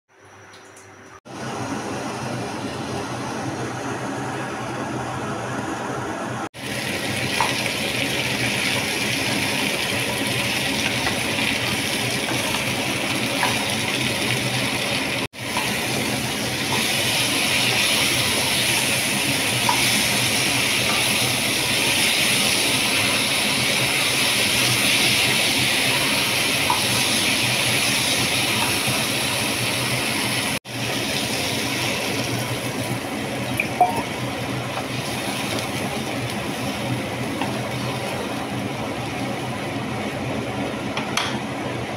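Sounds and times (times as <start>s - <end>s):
food sizzling in a pan: 6.6s - 39.6s.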